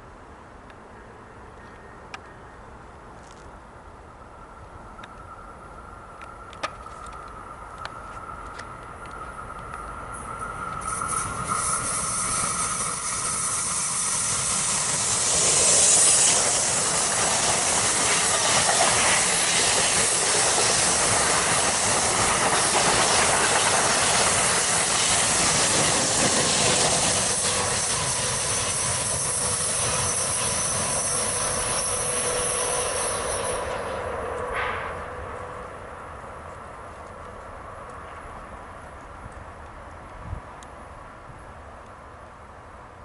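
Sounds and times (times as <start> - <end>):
train wheels rushing on rails: 5.0 - 39.1
wheels clicking over rail joints: 6.1 - 35.4.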